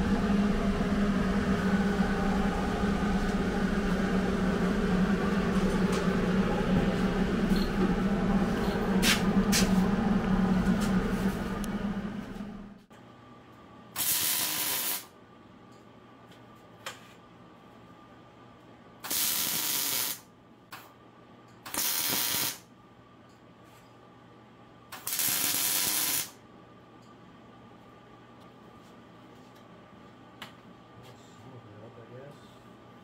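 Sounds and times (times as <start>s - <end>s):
welder arc hissing: 14.0s - 15.1s, 19.1s - 20.2s, 21.7s - 22.6s, 25.0s - 26.4s.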